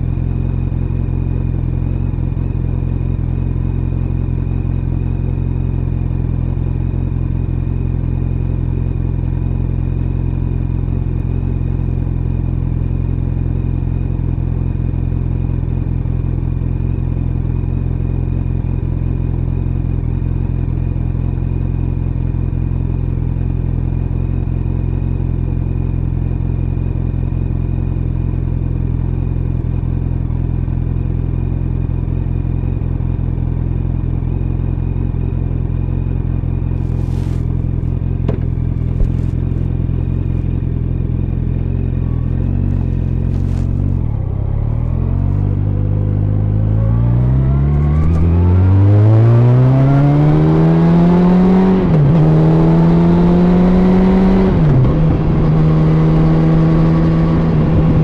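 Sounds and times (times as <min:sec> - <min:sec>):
motorcycle engine idling and revving: 0:00.0 - 0:58.0
muffled by jacket rustle: 0:36.8 - 0:39.7, 0:42.6 - 0:44.0.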